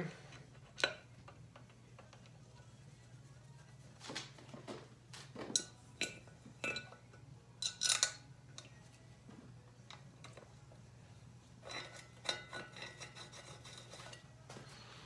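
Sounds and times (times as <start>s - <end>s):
low steady hum: 0.0s - 15.0s
metal hand tools clinking: 7.6s - 8.3s.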